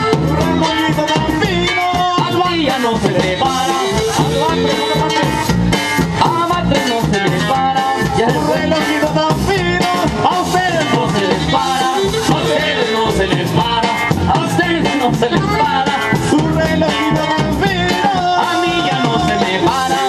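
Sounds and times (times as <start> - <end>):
saxophone melody: 0.0 - 1.9, 3.3 - 5.7, 14.7 - 20.0
drum kit beat: 0.0 - 20.0
guitar: 0.0 - 20.0.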